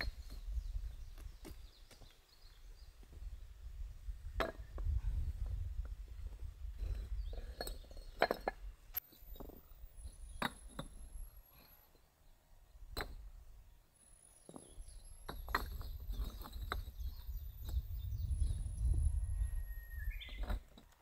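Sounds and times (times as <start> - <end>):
bricks clinking together: 6.8 - 9.6, 10.3 - 11.1, 14.5 - 17.0.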